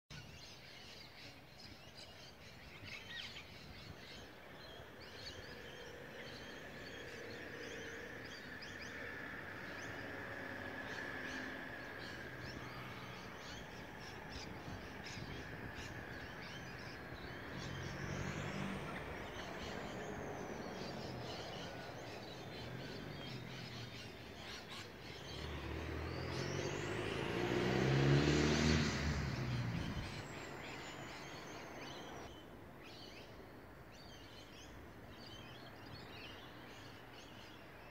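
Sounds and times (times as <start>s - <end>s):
birds chirping: 0.1s - 37.9s
steady traffic noise: 0.2s - 37.9s
car passing close: 4.0s - 32.3s.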